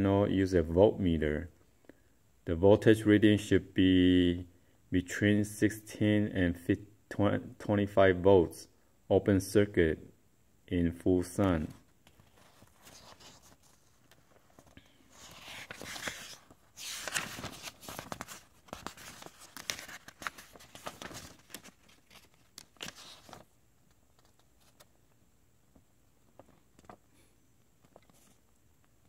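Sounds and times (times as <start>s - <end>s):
paper pages rustling: 11.6s - 25.0s, 25.7s - 28.5s.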